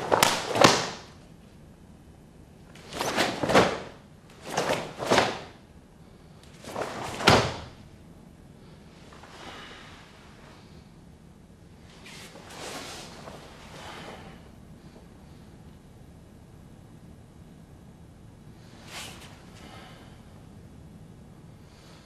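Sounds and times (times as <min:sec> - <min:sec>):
swishes and slaps of karate strikes: 0:00.0 - 0:01.2, 0:02.8 - 0:05.6, 0:06.5 - 0:07.8.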